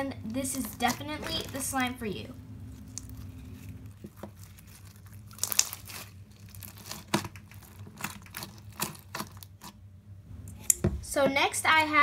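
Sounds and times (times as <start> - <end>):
small crackles of foam beads: 0.2 - 9.8
slime crunching when squeezed: 2.6 - 9.8.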